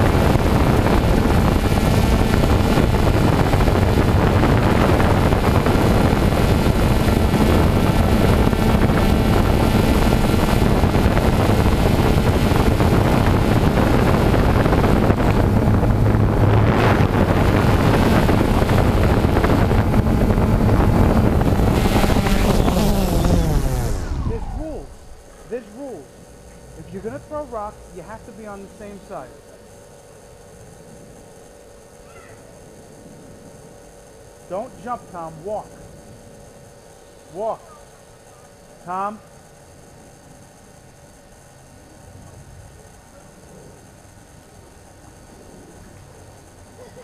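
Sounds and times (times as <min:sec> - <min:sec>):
wind noise on microphone: 0:00.0 - 0:25.6
drone motors humming: 0:00.0 - 0:47.0.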